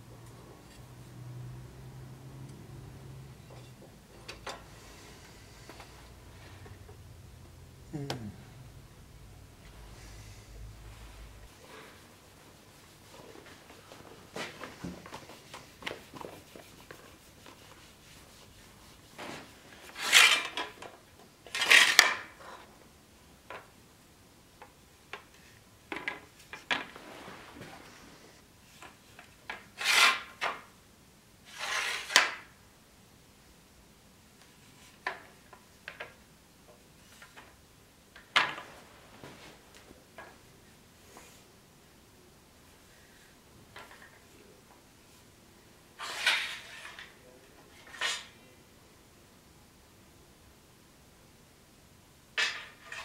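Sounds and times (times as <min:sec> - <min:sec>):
cloth rubbing a steel sword: 0:11.0 - 0:20.6, 0:46.0 - 0:47.1, 0:47.8 - 0:48.4.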